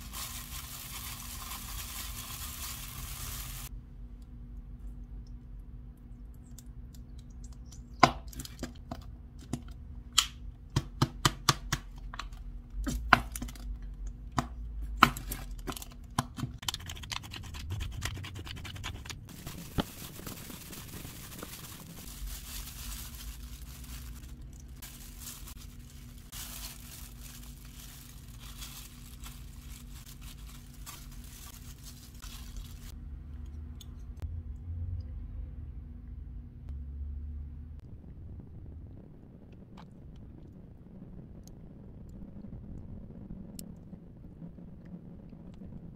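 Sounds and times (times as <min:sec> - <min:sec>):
plastic glove rustling and crinkling: 0:00.0 - 0:03.7, 0:15.0 - 0:33.0.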